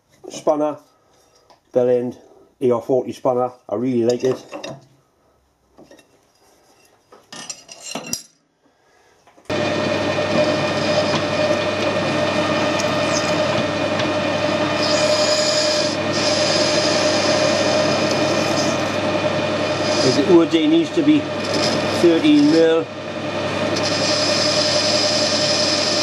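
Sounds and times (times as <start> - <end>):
metal lathe humming: 9.5 - 26.0.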